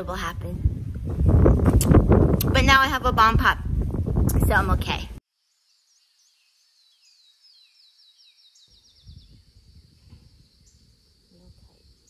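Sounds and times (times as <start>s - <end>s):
bird singing: 5.4s - 12.0s.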